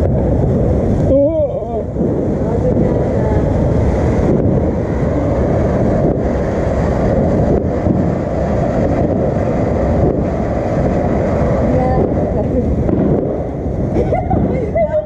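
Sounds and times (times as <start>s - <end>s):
fountain firework hissing: 0.0s - 15.0s.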